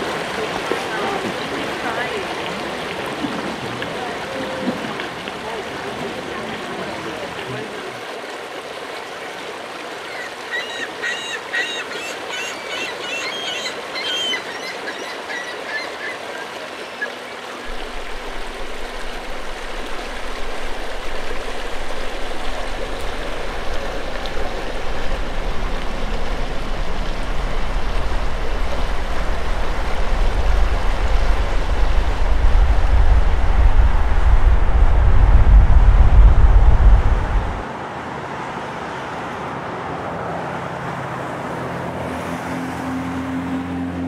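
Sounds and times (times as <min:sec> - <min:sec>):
river water rushing: 0:00.0 - 0:34.9
low rumble: 0:17.7 - 0:37.6.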